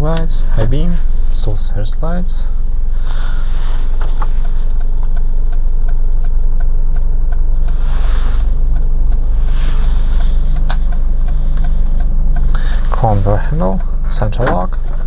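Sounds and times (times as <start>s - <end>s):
engine idling inside cabin: 0.0s - 15.0s
hissy rustles: 7.6s - 12.0s.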